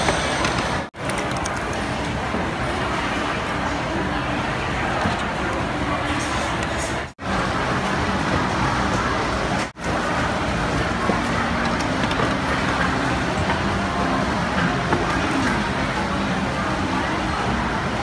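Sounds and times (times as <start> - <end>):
faint voices: 0.0 - 18.0
traffic noise: 0.0 - 18.0.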